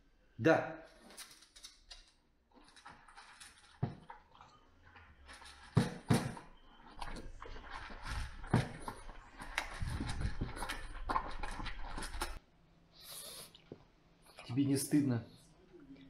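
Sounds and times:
bowl clacking on wall and floor: 0:01.1 - 0:12.4
puppy crunching dry kibble: 0:07.0 - 0:12.4.

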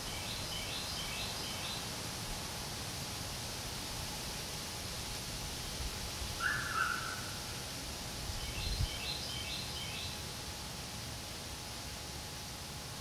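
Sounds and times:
outdoor hiss: 0:00.0 - 0:13.0
wild birds calling: 0:06.4 - 0:07.4
low wind rumble on microphone: 0:08.3 - 0:09.0.

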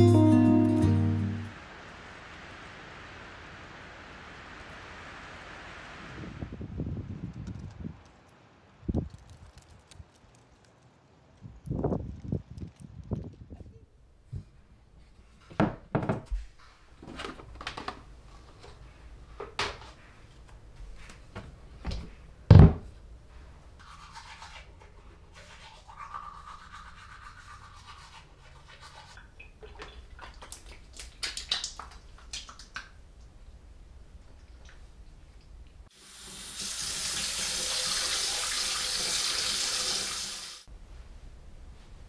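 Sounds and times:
knocks and clicks of cabinet: 0:22.5 - 0:22.9
toothbrush scrubbing teeth: 0:23.8 - 0:29.2.

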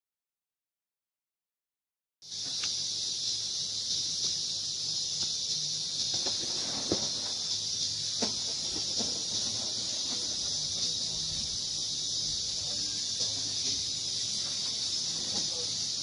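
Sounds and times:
insects droning: 0:02.2 - 0:16.0.

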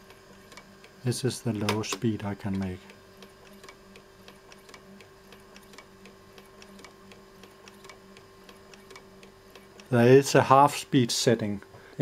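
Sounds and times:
sewing machine mechanism ticking: 0:00.0 - 0:01.0, 0:01.6 - 0:10.1
sewing machine motor hum: 0:00.0 - 0:10.7.

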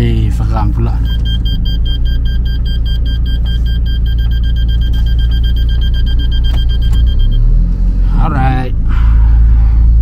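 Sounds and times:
car engine running: 0:00.0 - 0:10.0
rapid parking sensor beeping: 0:00.9 - 0:07.6.

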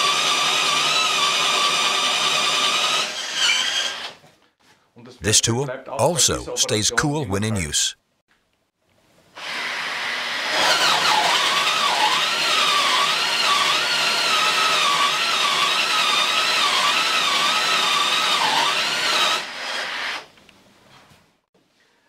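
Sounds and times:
cordless drill boring into wood: 0:00.0 - 0:04.2, 0:09.4 - 0:20.2.

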